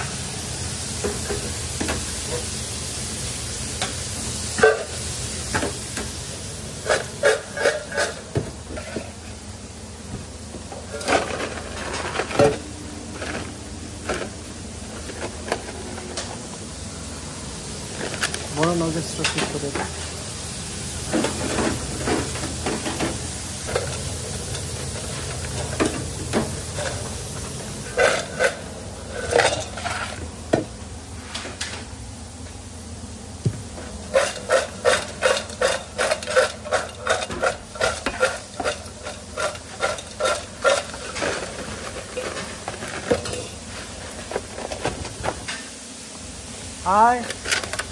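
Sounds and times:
kitchen hum: 0.0s - 47.9s
fries swishing in a steel bowl: 33.8s - 44.5s.

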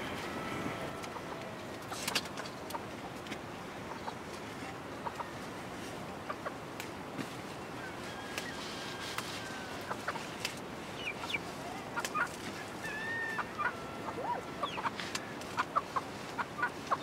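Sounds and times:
chickens clucking: 0.0s - 5.5s, 6.1s - 6.7s, 7.8s - 17.0s
dry straw crackling: 6.8s - 17.0s.

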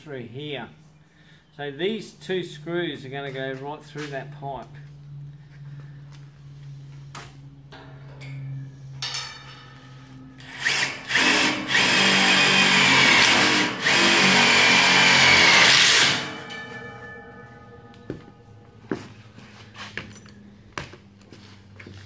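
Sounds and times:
cordless drill whining: 10.4s - 16.4s.

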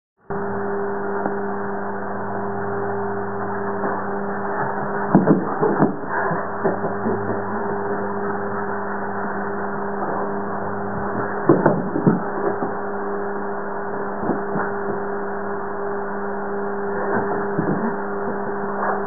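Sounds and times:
steady electric hum: 0.2s - 19.0s.

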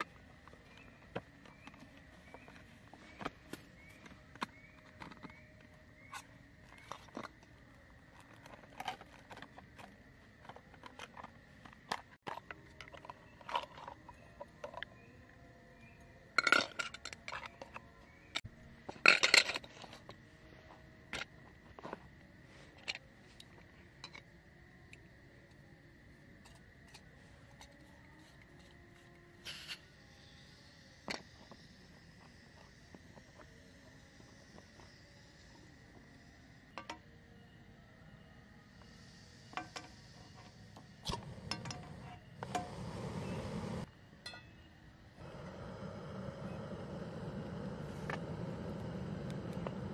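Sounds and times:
gas stove hissing: 38.8s - 43.9s, 45.2s - 49.9s.

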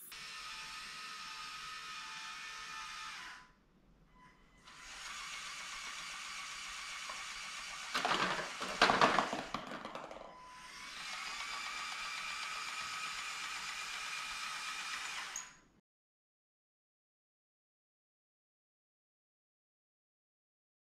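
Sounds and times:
electric motors whirring: 0.0s - 3.5s, 4.6s - 8.8s, 10.4s - 15.6s
ping-pong balls clattering: 8.0s - 10.4s.

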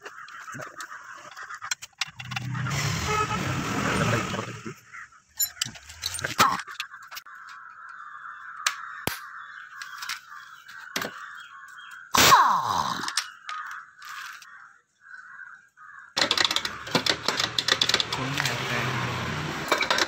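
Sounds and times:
rapid metallic clicking: 16.2s - 18.6s
sharp metal clicks: 16.2s - 18.6s.

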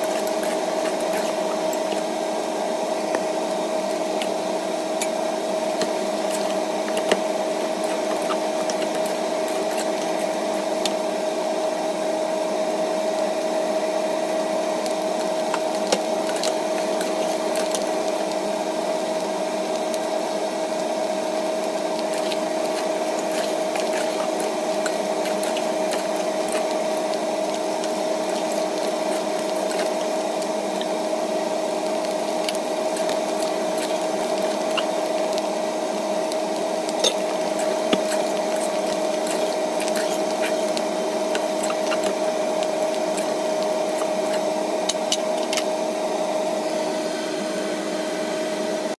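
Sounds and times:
steady tonal hum: 21.3s - 47.7s
metal spatula scraping clay pot: 22.0s - 26.9s, 37.0s - 42.2s.

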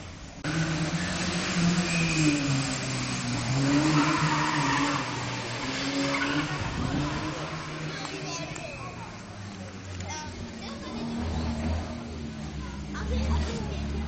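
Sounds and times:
rally car engine revving: 0.4s - 9.8s, 10.4s - 14.0s.

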